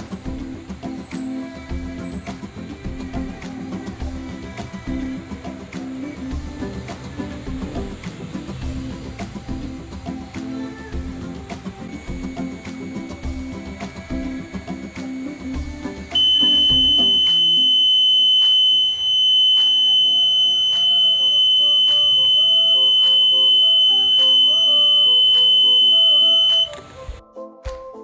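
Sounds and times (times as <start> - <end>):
background music: 0.0 - 28.0
electronic alarm buzzer: 11.9 - 26.8.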